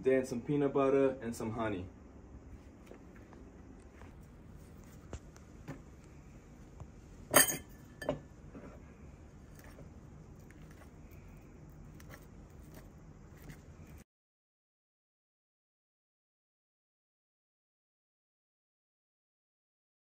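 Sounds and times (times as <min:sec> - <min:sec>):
fork clinking against ceramic bowl: 0:07.3 - 0:08.2.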